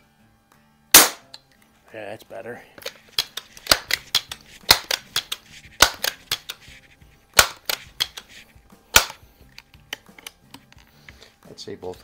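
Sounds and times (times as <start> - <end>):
air rifle pump clack: 2.8 - 6.7, 7.4 - 12.0.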